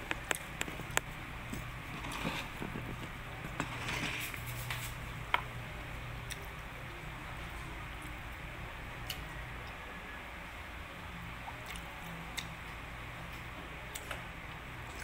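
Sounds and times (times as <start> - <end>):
low steady hum: 0.0 - 15.0
soft chewing: 6.2 - 8.3, 11.4 - 15.0.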